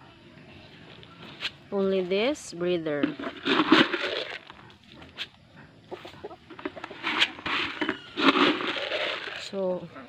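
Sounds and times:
chickens scratching ground: 0.4s - 2.4s, 3.0s - 10.0s
chickens clucking: 3.9s - 10.0s.

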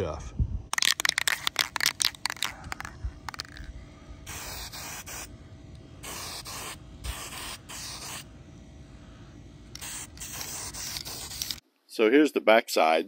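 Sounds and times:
aerosol can spraying: 0.8s - 3.7s, 4.3s - 5.3s, 6.0s - 8.3s, 9.7s - 11.6s.

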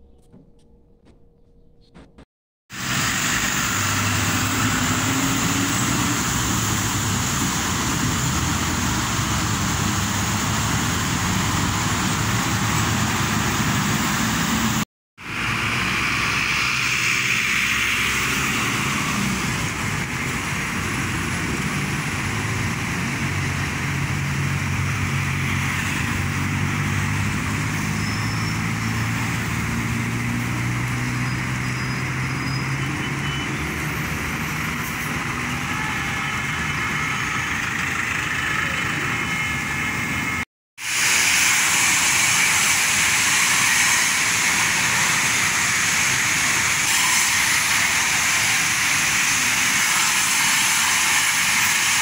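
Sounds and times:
bus engine humming: 0.0s - 40.5s
road traffic: 0.0s - 52.0s.

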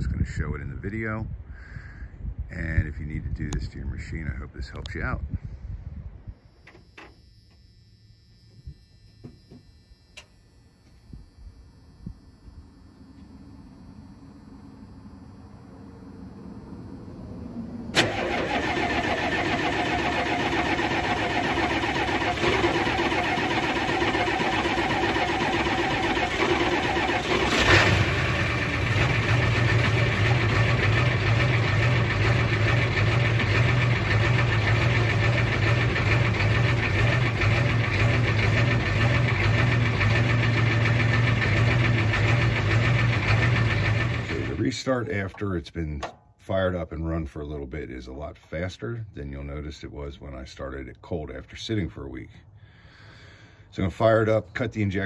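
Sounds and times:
diesel engine cranking and idling: 13.0s - 45.4s.

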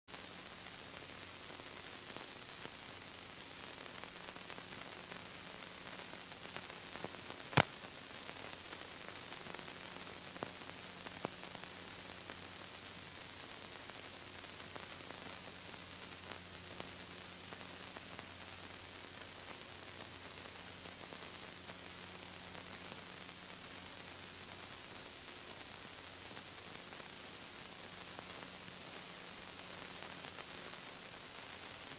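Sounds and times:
videotape hiss and hum: 0.1s - 31.9s.

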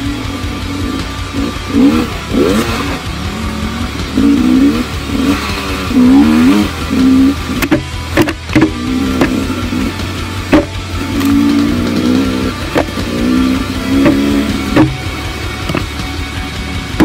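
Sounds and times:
dirt bike engine revving: 0.0s - 17.0s.

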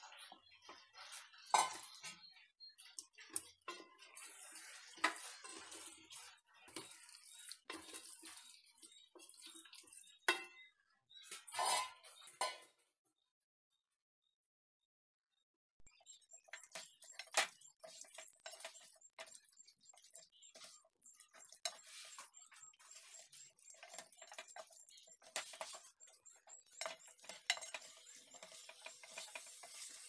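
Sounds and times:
wooden spatula stirring: 3.7s - 10.0s, 16.0s - 30.0s.

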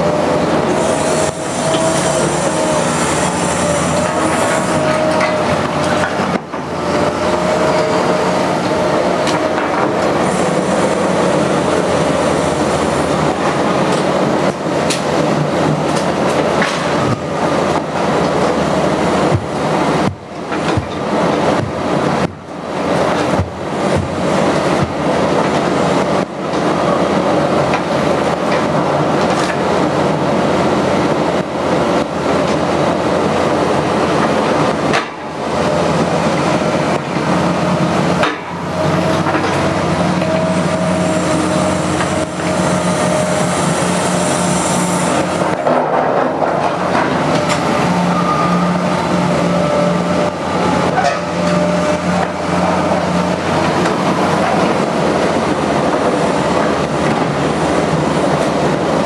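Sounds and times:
diesel engine under load: 0.0s - 59.0s
hydraulic whine: 0.0s - 59.0s
hiss: 0.7s - 4.9s, 10.2s - 13.4s, 40.9s - 45.5s.

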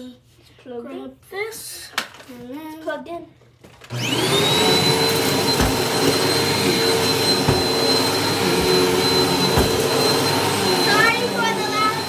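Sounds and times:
vacuum cleaner running: 3.9s - 12.0s.

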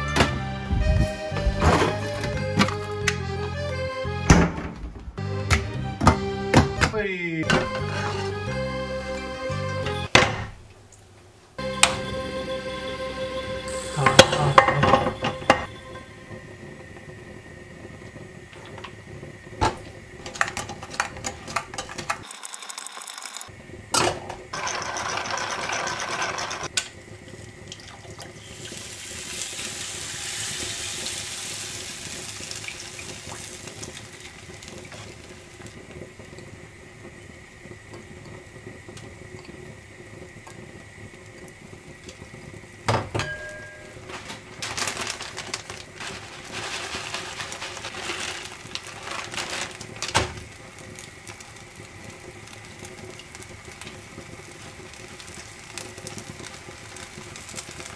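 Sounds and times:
batter pouring into pan: 24.6s - 36.5s, 43.3s - 57.9s
shredded cheese pattering: 44.1s - 53.7s.

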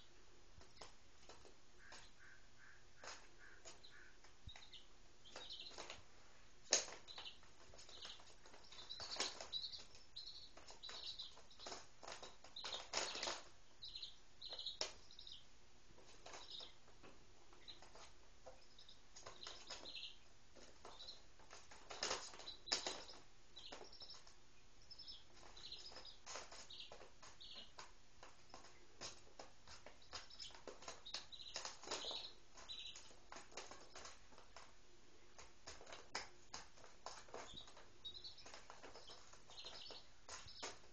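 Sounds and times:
chicks peeping: 0.0s - 40.9s
scratchy taps and rustles on paper: 25.3s - 40.9s.

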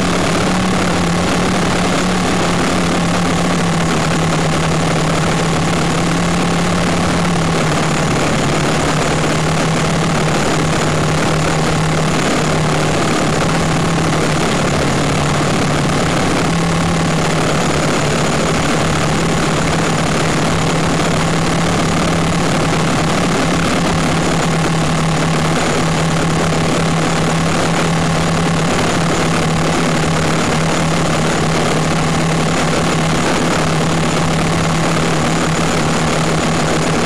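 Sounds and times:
quadcopter motors droning: 0.0s - 37.0s.

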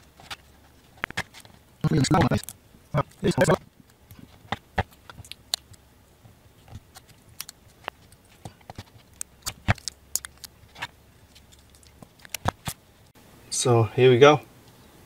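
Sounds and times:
plastic wrap crinkling: 0.0s - 5.8s.

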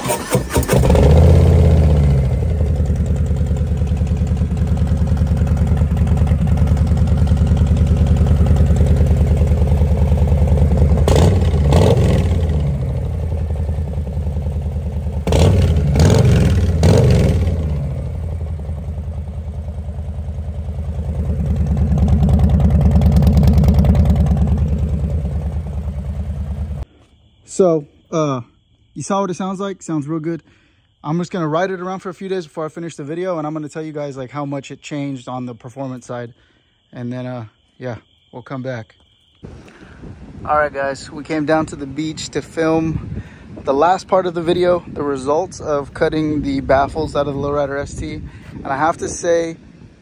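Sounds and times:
motorcycle engine idling loudly: 0.1s - 26.8s
motorcycle throttle blips: 0.1s - 26.9s.

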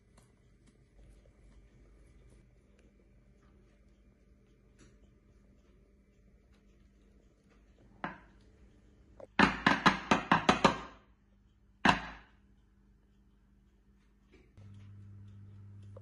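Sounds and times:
glass dish knocking on countertop: 9.4s - 11.0s.

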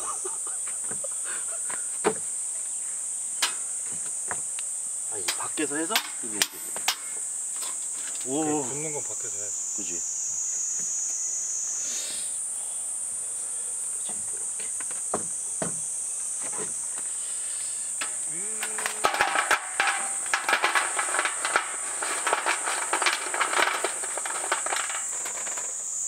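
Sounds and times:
insects droning: 0.0s - 26.0s
irregular crackles and clatters: 3.4s - 8.3s, 18.0s - 26.0s.

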